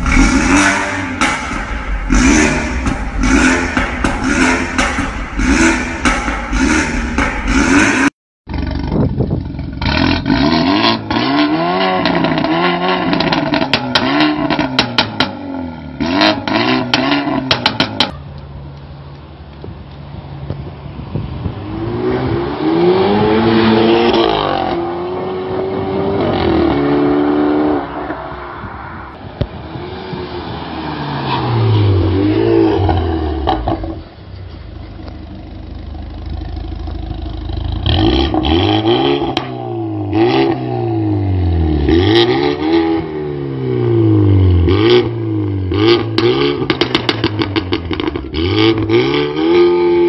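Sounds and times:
car engine revving: 0.0s - 18.1s, 35.0s - 50.0s
exhaust pops: 1.1s - 10.3s, 46.0s - 48.9s.

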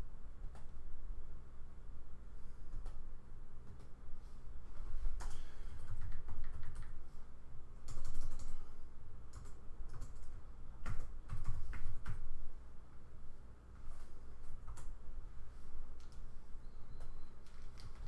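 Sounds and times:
typing on computer keyboard: 5.2s - 7.0s, 7.8s - 8.6s, 9.3s - 12.3s, 17.0s - 18.0s.

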